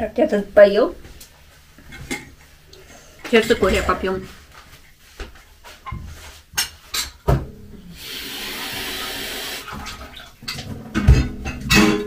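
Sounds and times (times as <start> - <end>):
water running from tap: 8.0 - 10.3.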